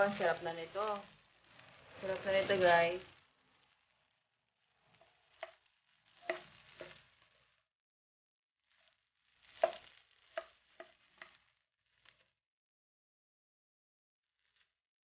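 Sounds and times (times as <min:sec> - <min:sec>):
plastic spatula scraping a wok: 0:00.0 - 0:07.7, 0:08.6 - 0:12.4, 0:14.3 - 0:14.8
rice rustling: 0:00.0 - 0:07.7, 0:08.6 - 0:12.4, 0:14.4 - 0:14.8.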